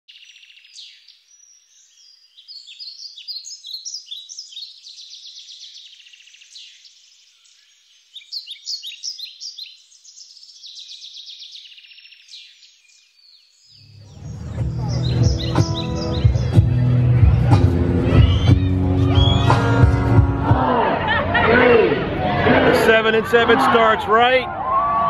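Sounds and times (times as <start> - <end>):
songbirds chirping and trilling: 0.1 - 19.8.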